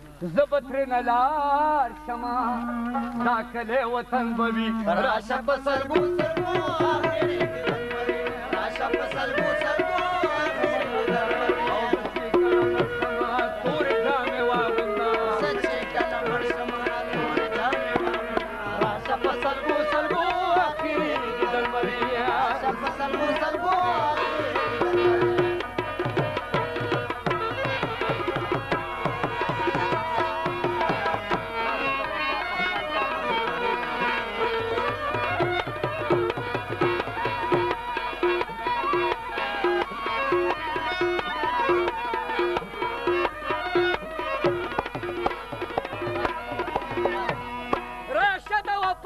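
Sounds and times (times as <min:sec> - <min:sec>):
tabla drumming: 0:00.3 - 0:49.0.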